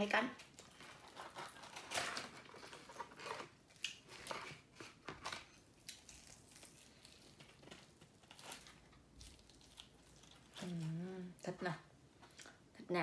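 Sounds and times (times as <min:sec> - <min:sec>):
fried chicken skin crackling: 0:05.7 - 0:11.0.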